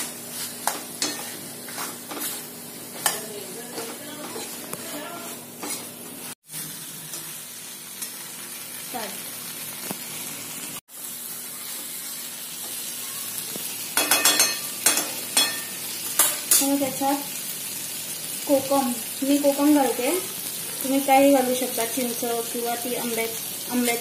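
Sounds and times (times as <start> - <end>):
food sizzling in frying pan: 0.0 - 24.0
spoon scraping pan: 0.3 - 6.4.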